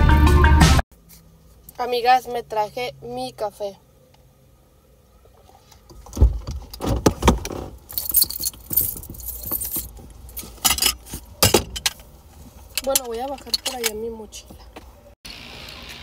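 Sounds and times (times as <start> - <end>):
car keys jangling: 7.9 - 11.9.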